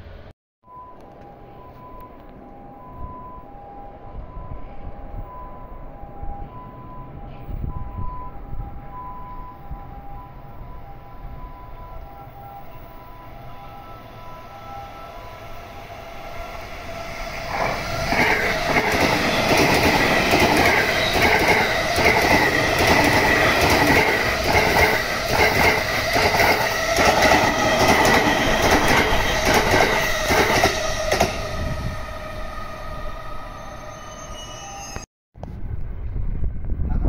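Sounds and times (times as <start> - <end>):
electric train passing: 0.0 - 35.1
high-pitched ring: 11.5 - 35.1.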